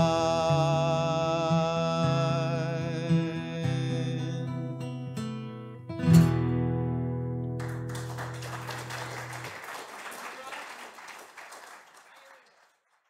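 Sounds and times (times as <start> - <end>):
acoustic guitar strumming: 0.0 - 8.6
audience applause: 7.6 - 13.0.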